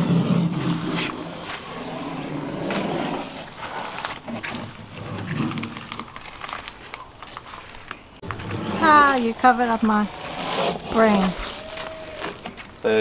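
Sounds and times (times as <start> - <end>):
masking tape peeling off: 9.0 - 12.7.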